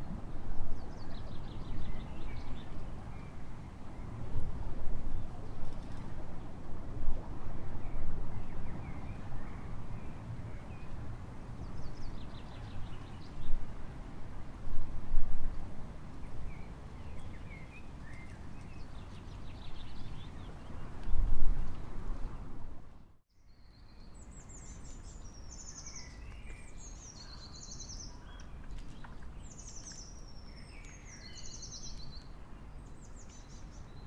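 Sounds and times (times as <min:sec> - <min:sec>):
birds chirping: 0:23.6 - 0:34.0.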